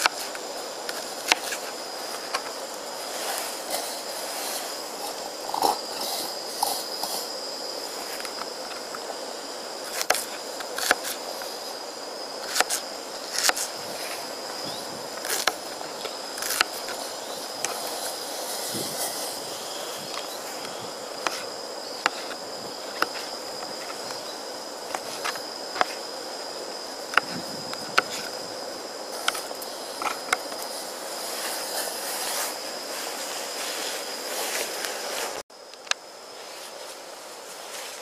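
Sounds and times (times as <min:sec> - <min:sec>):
gas stove hissing: 0:00.0 - 0:35.4.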